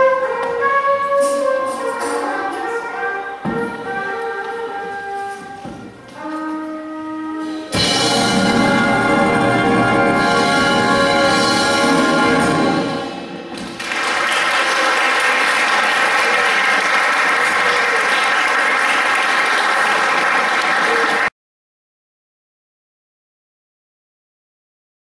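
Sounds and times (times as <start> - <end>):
concert band holding a chord: 0.0 - 16.2
audience applause: 13.5 - 21.3.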